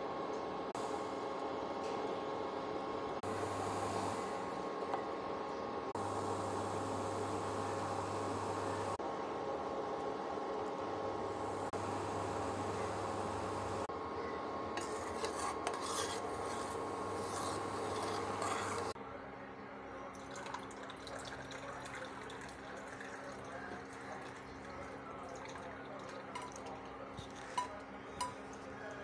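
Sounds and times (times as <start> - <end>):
induction cooktop hum: 0.0 - 29.0
metal spoon scraping saucepan: 14.8 - 19.0, 26.2 - 28.5.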